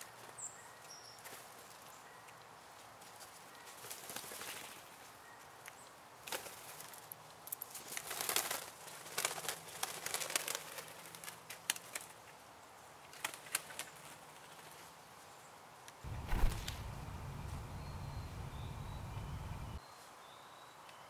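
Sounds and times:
birds wings flapping: 3.7 - 5.0, 6.2 - 7.1, 7.8 - 12.1, 13.1 - 14.9, 16.1 - 19.8
rustling: 16.1 - 19.8
sharp clicks: 16.1 - 19.8.

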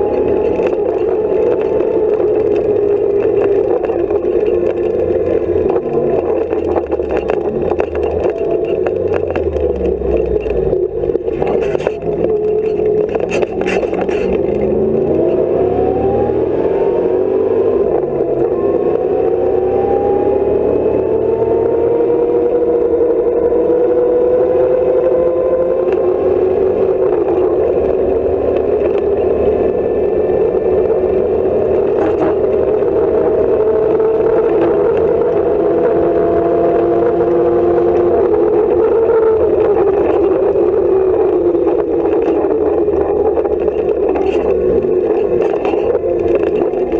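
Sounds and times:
body knocks and rattles: 0.0 - 15.4, 41.5 - 46.9
car engine accelerating: 0.0 - 46.9.

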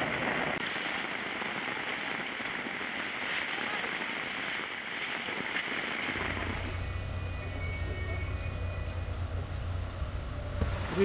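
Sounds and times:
heavy rain hissing: 0.0 - 11.0
faint high steady tone: 6.2 - 10.6
idling vehicles rumbling: 6.2 - 11.0.

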